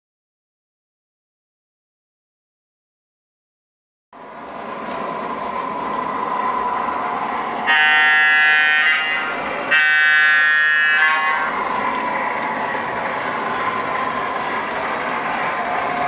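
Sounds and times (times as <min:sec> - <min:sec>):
model train rolling rumble: 0:04.2 - 0:16.0
train horn blasts: 0:07.6 - 0:11.7.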